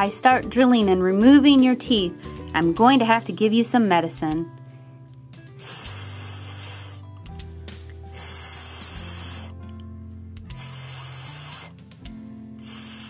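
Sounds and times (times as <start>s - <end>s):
background music with low notes: 0.0s - 13.0s
spray hissing: 5.6s - 7.1s, 8.1s - 9.6s, 10.6s - 11.7s, 12.6s - 13.0s.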